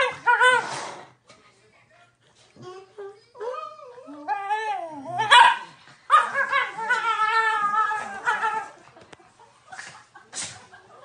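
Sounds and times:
dogs crying and barking: 0.0s - 0.8s, 2.7s - 8.8s.

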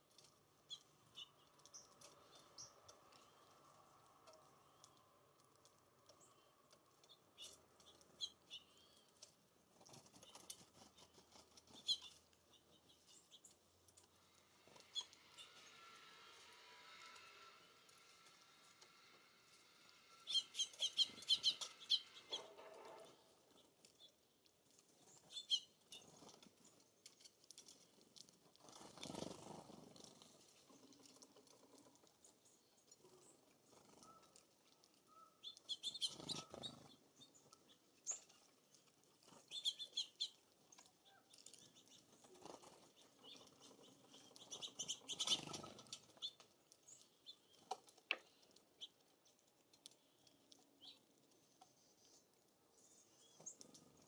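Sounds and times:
songbirds chirping: 0.0s - 54.0s
bird wingbeats fluttering: 27.6s - 32.0s, 35.8s - 37.0s, 41.3s - 46.4s.

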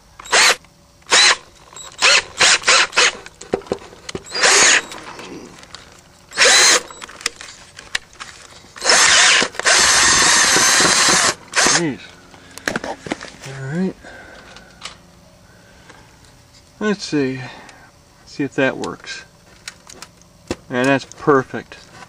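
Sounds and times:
cordless drill drilling metal: 0.2s - 3.3s, 4.2s - 5.1s, 6.3s - 7.1s, 8.8s - 11.8s.

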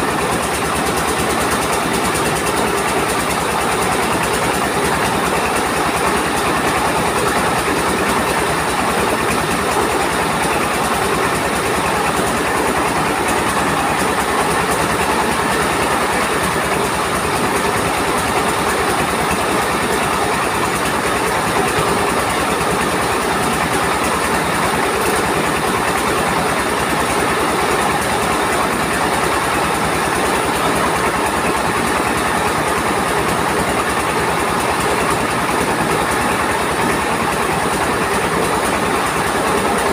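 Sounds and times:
rice mill engine running: 0.0s - 39.9s.

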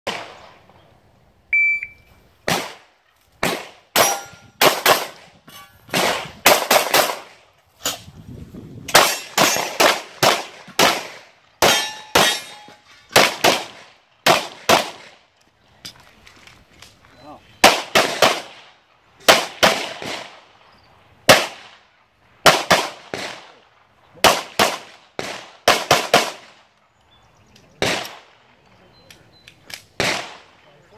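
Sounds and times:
shot timer beep: 1.5s - 2.1s
pistol shots: 2.4s - 5.3s, 5.9s - 8.0s, 8.9s - 15.2s, 17.6s - 20.5s, 21.3s - 21.8s, 22.4s - 23.6s, 24.2s - 26.6s, 27.8s - 28.4s, 29.6s - 30.6s.

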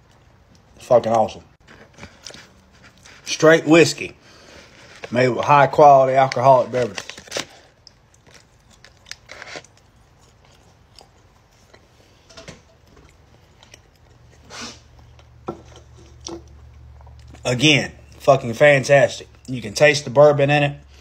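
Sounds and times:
person chewing: 7.4s - 18.2s.

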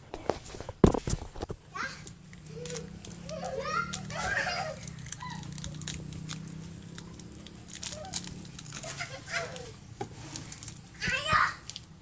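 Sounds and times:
child shouting: 1.7s - 5.5s, 11.0s - 11.7s
children crying out: 1.8s - 5.8s, 7.8s - 9.8s.

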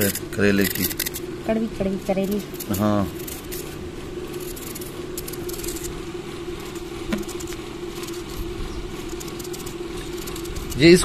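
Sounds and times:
motor hum: 0.0s - 11.0s
knife scraping gourd skin: 2.3s - 6.0s.

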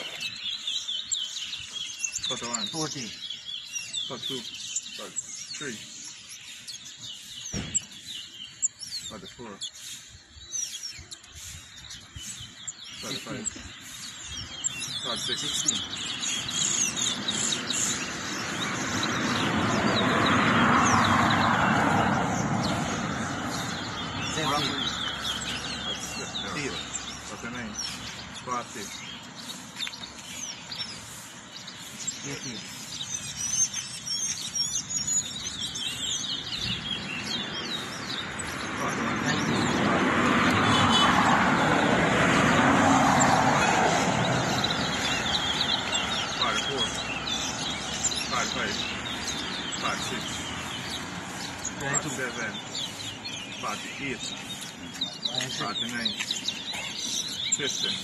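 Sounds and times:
finches whistling: 0.0s - 41.9s, 42.5s - 58.0s
broad rushing noise: 11.3s - 34.0s, 35.5s - 58.0s
vehicle passing: 12.4s - 58.0s.

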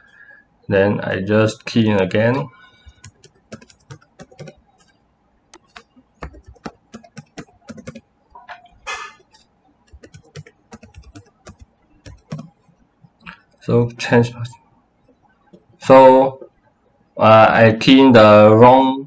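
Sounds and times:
short breathy hiss: 8.9s - 9.2s.

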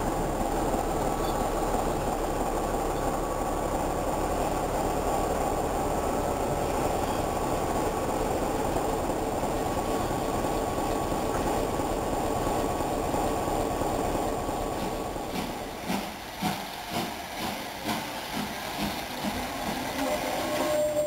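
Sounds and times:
heavy rolling stock running noise: 0.0s - 21.0s
train wheels clicking over rail joints: 6.5s - 21.0s
steady high squeal: 20.0s - 21.0s.

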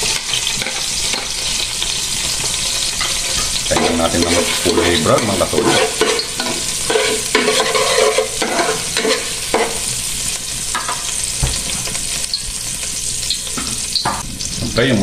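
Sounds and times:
garlic sizzling in oil: 0.0s - 15.0s
spatula scraping a pan: 0.1s - 10.0s.

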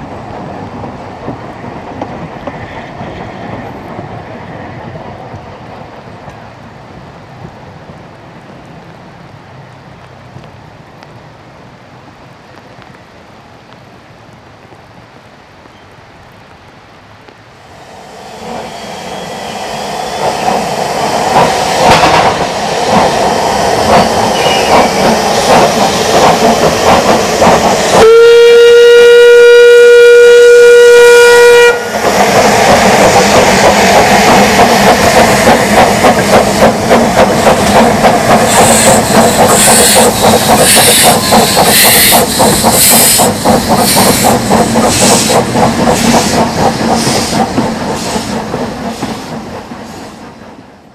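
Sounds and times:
hissing steam and exhaust: 17.6s - 28.6s, 31.0s - 50.9s
steam train moving off: 17.6s - 50.9s
steam whistle: 17.7s - 20.9s, 28.0s - 32.0s, 38.6s - 43.2s.

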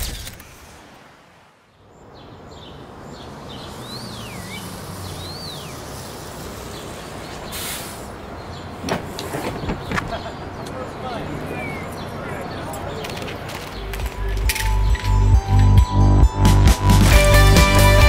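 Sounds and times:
traffic rumble: 0.0s - 16.5s
bird chirping and whistling: 3.6s - 6.1s.

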